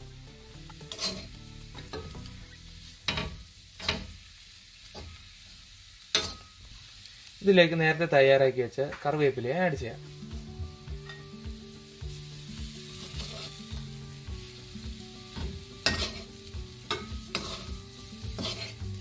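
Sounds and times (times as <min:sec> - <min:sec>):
food sizzling in oil: 0:00.0 - 0:19.0
metal spoon clicking on pan: 0:06.1 - 0:06.5, 0:16.9 - 0:17.7.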